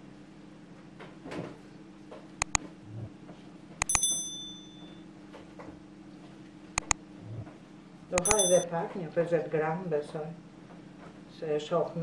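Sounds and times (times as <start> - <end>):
mouse clicks: 3.8 - 4.1, 8.2 - 8.6
bell ding: 3.8 - 5.0, 8.2 - 8.6.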